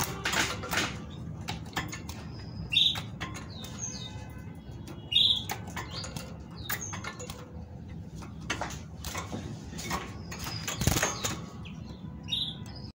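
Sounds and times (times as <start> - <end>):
bird rattling cage wire: 0.0 - 11.7
faint high bird chirps: 1.9 - 7.4.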